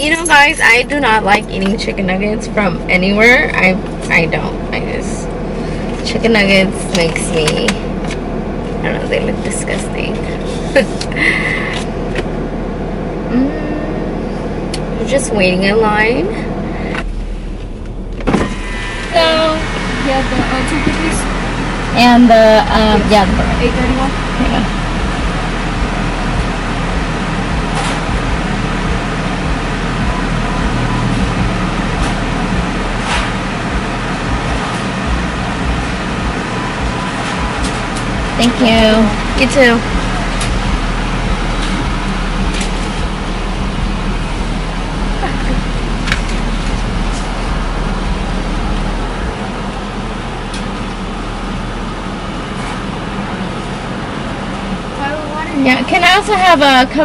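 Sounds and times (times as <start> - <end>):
car engine idling: 0.0 - 57.0
deep low rumble: 0.0 - 57.0.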